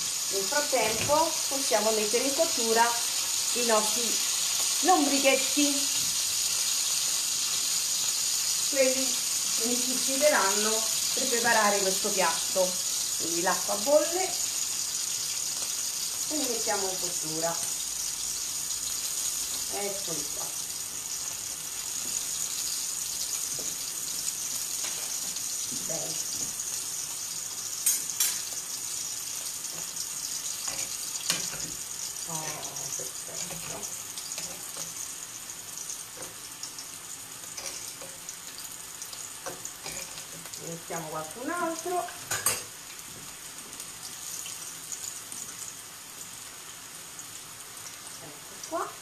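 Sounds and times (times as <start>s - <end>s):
food cooking hiss: 0.0s - 49.0s
vegetables sizzling in oil: 0.0s - 49.0s.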